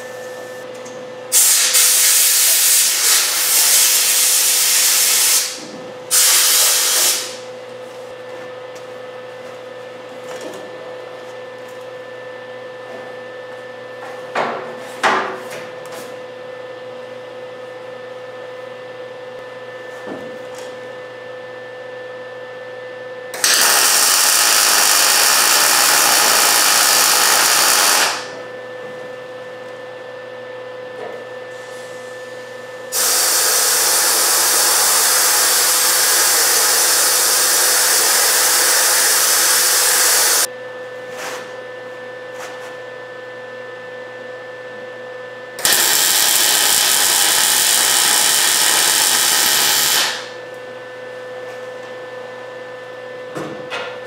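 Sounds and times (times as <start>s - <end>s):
mig welder welding: 1.3s - 7.5s, 23.3s - 28.5s, 32.9s - 40.5s, 45.6s - 50.5s.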